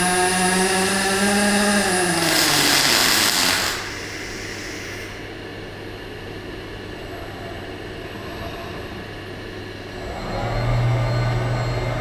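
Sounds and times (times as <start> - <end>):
welding arc hissing: 0.0 - 5.2
low hum of welding equipment: 0.0 - 12.0.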